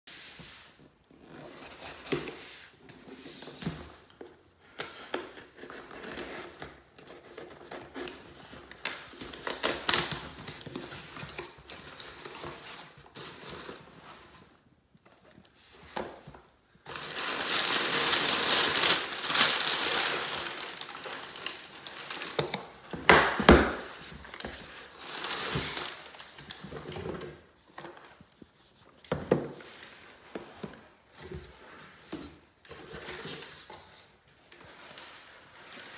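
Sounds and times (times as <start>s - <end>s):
packing paper crinkling: 16.8s - 22.9s, 23.7s - 27.1s.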